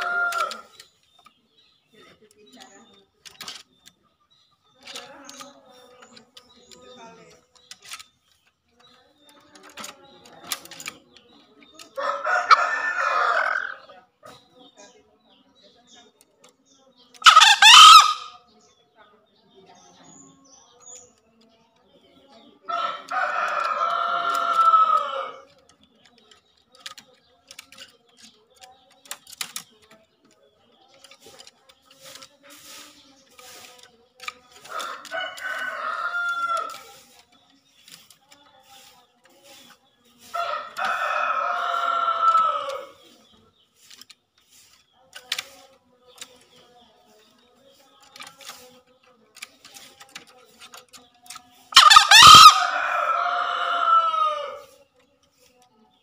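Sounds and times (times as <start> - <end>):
junglefowl cock crowing: 0.0 - 0.6, 17.2 - 18.4, 51.8 - 54.6
rooster crowing: 0.0 - 0.7, 40.4 - 42.9, 51.8 - 54.6.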